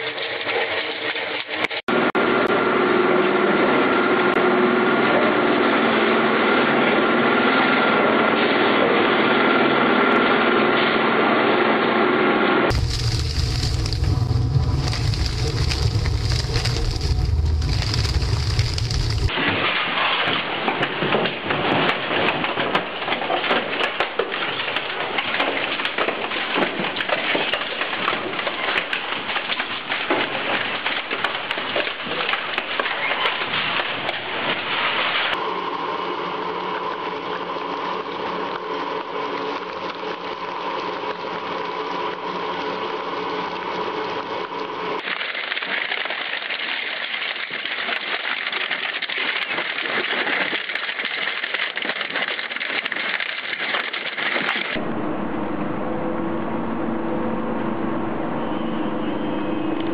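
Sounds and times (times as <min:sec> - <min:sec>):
machine drone with hum: 0:01.9 - 0:19.6, 0:20.3 - 0:45.0, 0:54.0 - 0:59.9
shredder crunching steel drums: 0:12.7 - 0:54.8.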